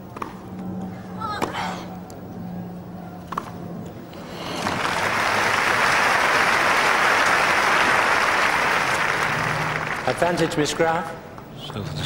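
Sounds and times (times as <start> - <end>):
crowd applauding: 4.3 - 10.8.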